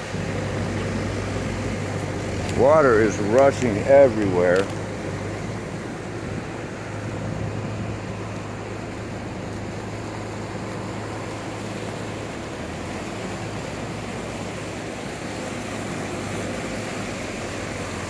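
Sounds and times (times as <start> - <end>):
floodwater rushing: 0.0 - 18.0.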